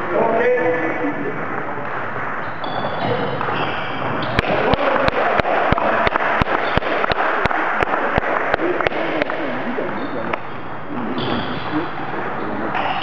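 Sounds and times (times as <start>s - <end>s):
sports hall background noise: 0.0s - 13.0s
table tennis ball bouncing: 1.8s - 9.4s.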